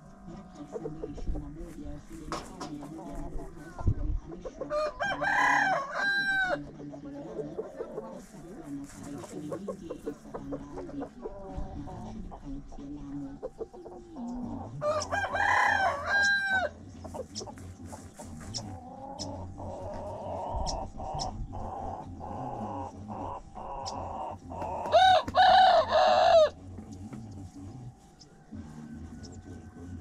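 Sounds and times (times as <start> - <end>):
hens clucking: 0.0 - 30.0
rooster crowing: 4.7 - 6.6, 14.7 - 16.7, 24.7 - 26.6.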